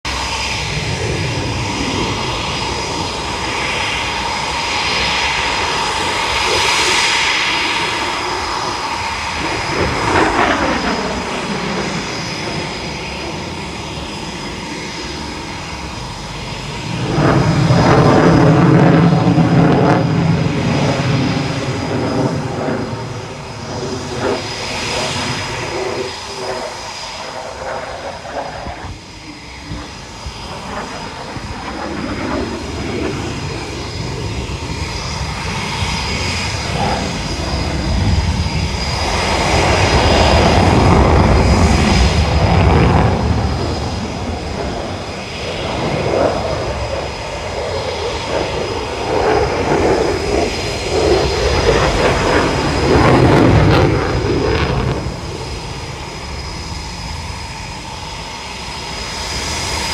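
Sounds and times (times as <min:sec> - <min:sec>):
jet engine running with whine: 0:00.0 - 0:59.9.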